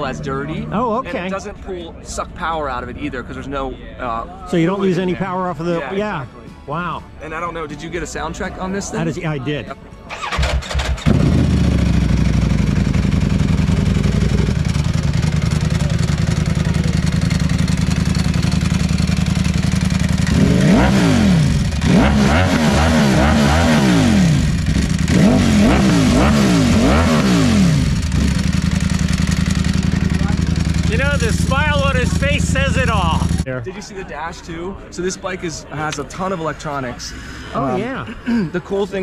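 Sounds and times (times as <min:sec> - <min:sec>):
motorcycle engine idling and revving: 0:10.1 - 0:33.5.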